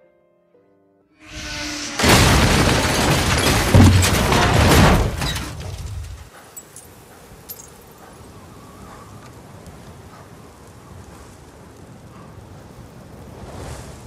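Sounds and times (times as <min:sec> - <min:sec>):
glass shattering: 0:01.7 - 0:06.9
glass fragments tinkling: 0:06.6 - 0:07.9.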